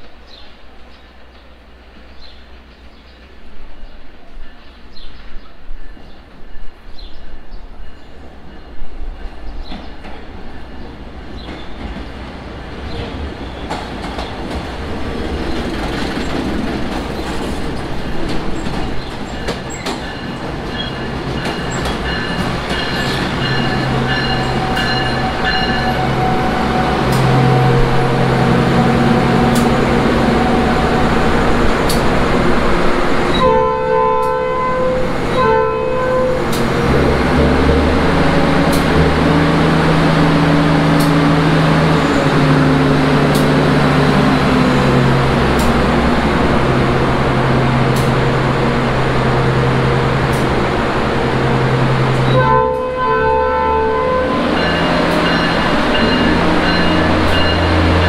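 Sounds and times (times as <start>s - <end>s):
train engine hum: 0.0s - 58.0s
train wheels clicking over rail joints: 9.6s - 28.0s, 31.5s - 32.2s, 38.2s - 40.0s, 43.1s - 48.4s, 50.2s - 51.0s
train horn: 22.2s - 31.3s, 33.3s - 38.0s, 51.9s - 58.0s.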